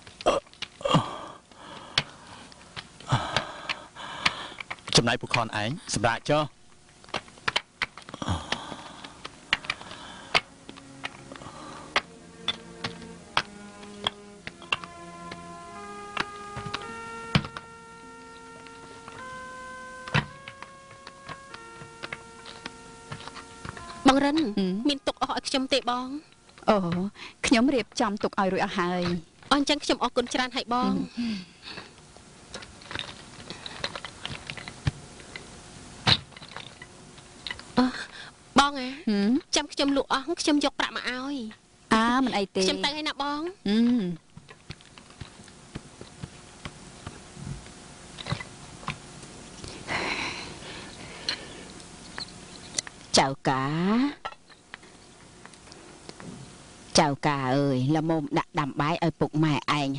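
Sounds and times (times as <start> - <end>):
firewood clicks and knocks: 6.9 - 8.7, 9.5 - 15.4, 36.0 - 37.7
background music of held notes: 8.6 - 26.7
bricks and tools clinking: 12.0 - 15.4, 32.5 - 35.4, 36.1 - 36.9.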